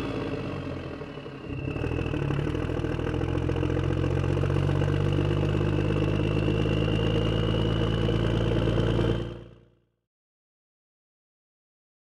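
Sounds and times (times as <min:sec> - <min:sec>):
engine idling: 0:00.0 - 0:09.8
high whine rising in pitch: 0:05.0 - 0:09.3.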